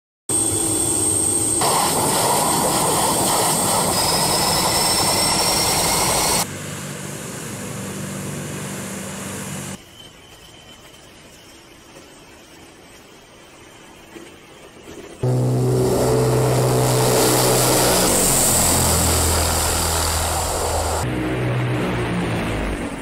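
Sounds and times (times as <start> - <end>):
faint high whine: 0.3 - 8.2, 9.1 - 21.1
turboprop aircraft engines running: 0.3 - 9.8, 14.1 - 23.0.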